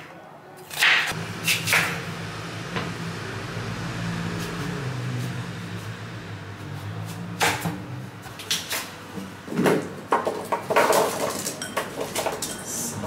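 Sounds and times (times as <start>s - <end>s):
low hum: 1.2s - 8.5s
vegetables clattering into metal tray: 9.5s - 12.6s.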